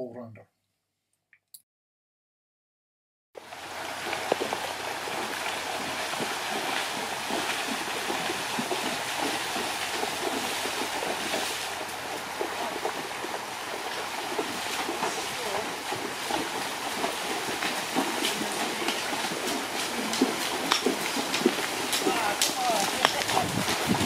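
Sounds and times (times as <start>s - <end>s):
horses splashing through water: 3.4s - 24.0s
running water rushing: 3.4s - 24.0s.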